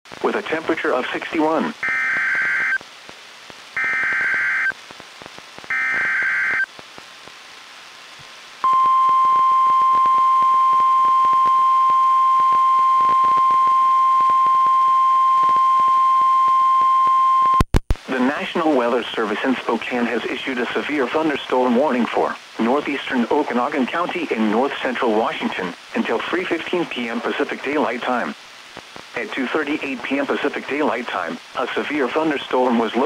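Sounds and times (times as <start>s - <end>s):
screeching digital data bursts: 1.8s - 2.8s, 3.8s - 4.7s, 5.7s - 6.7s
steady warning alarm tone: 3.8s - 4.7s, 5.7s - 6.6s.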